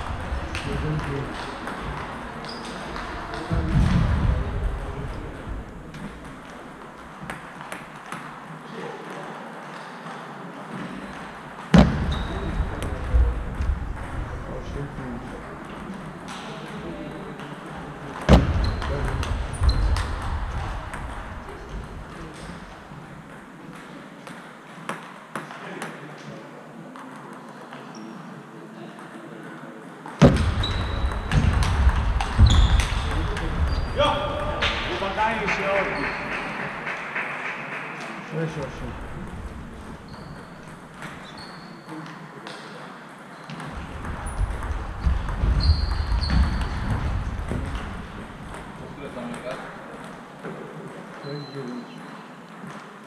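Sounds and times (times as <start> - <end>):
table tennis balls clicking: 0.0 - 3.6, 30.0 - 33.8, 38.9 - 51.2
loud close thump: 11.7 - 14.2, 18.3 - 20.4, 30.2 - 35.0.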